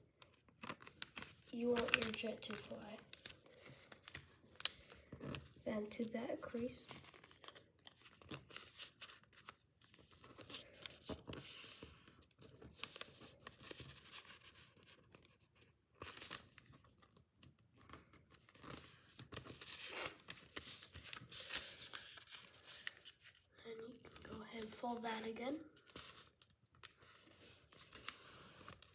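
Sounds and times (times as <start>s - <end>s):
paper rustling and crinkling: 0.1s - 28.9s
sharp paper crackle: 0.2s - 28.9s.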